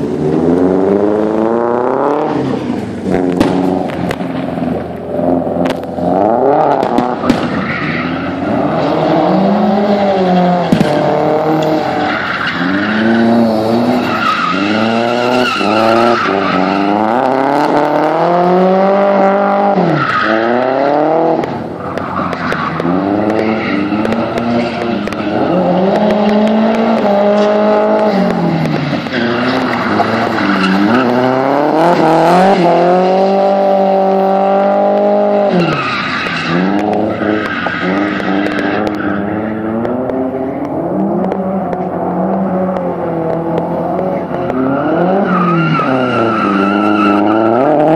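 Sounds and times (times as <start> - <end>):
car engine revving: 0.0 - 47.9
tyres squealing and skidding: 4.1 - 47.9.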